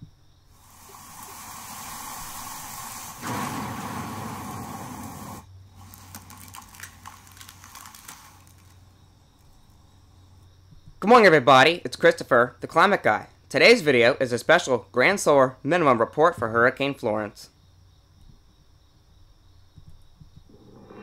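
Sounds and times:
rushing hiss: 0.5 - 8.8
loud full rush: 0.7 - 5.4
scattered crackles: 0.7 - 9.8.

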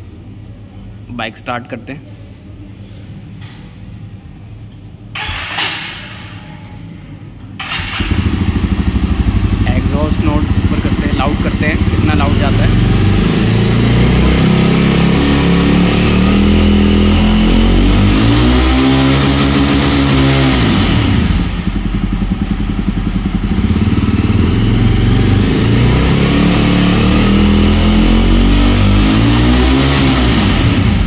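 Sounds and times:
motorcycle engine revving hard: 7.6 - 31.0.

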